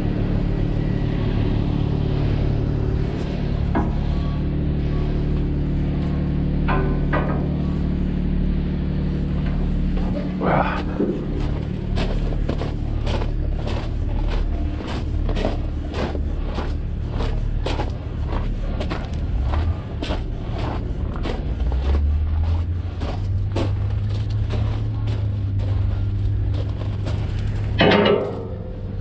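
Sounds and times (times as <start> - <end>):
vehicle engine rumbling: 0.0 - 29.0.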